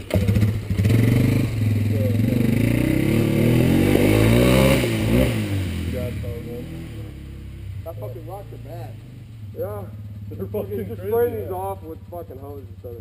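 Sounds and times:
quad bike engine revving: 0.0 - 13.0.

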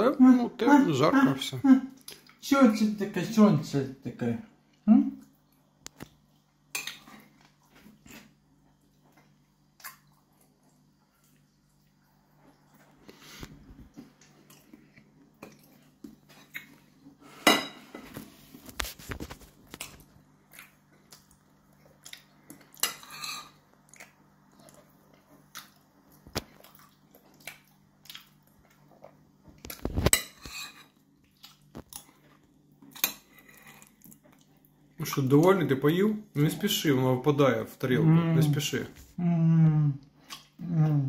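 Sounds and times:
spoon scraping ceramic plate: 22.8 - 23.6, 30.0 - 31.0.

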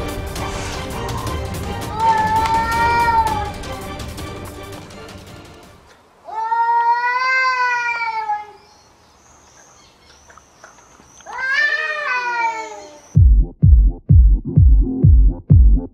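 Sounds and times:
electronic dance music: 0.0 - 5.5, 13.2 - 15.9
cats yowling: 1.0 - 3.8, 6.3 - 8.7, 11.2 - 13.2.

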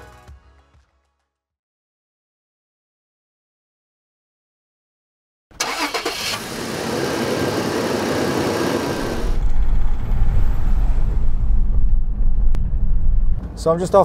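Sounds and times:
rush of passing traffic: 5.7 - 14.0
car driving low rumble: 7.2 - 14.0.

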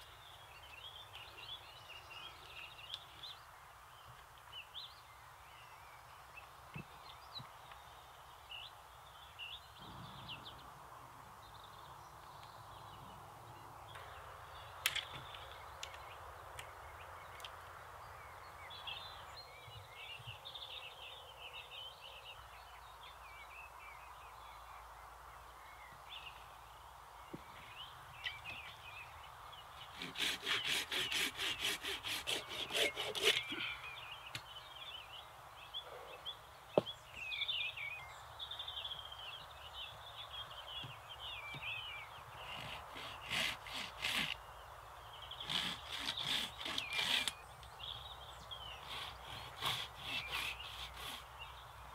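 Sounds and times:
small birds chirping: 0.0 - 10.8, 11.4 - 51.9
pruning saw cutting branch: 29.9 - 33.6, 42.5 - 44.4, 45.4 - 47.4, 48.8 - 51.3.

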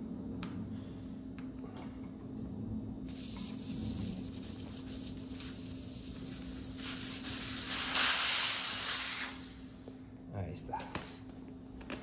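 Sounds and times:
air hissing out of bicycle tyre: 3.1 - 9.6.

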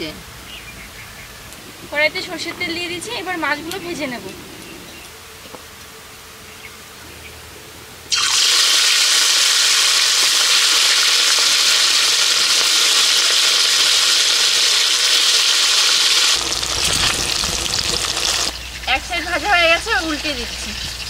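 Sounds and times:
fish sizzling in hot oil: 8.1 - 21.0.

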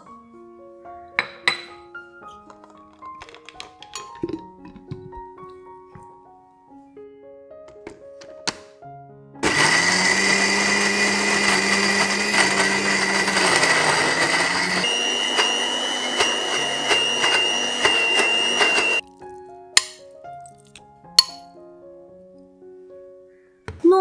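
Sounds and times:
blender running: 9.4 - 19.0.

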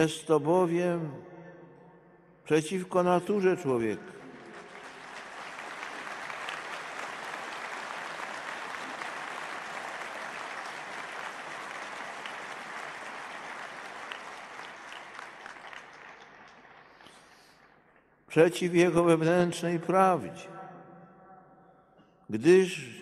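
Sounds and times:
large crowd applauding: 3.8 - 17.9.

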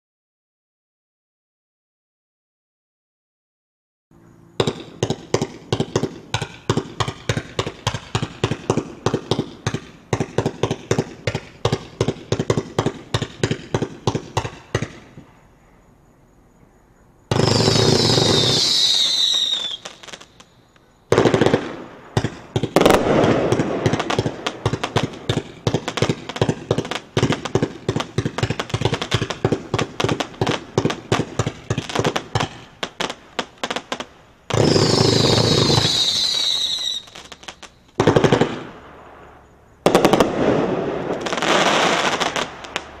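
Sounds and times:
fireworks firing shots: 4.6 - 15.3, 17.3 - 20.5, 21.1 - 43.0
firework whistle: 17.3 - 20.5, 34.5 - 42.9.

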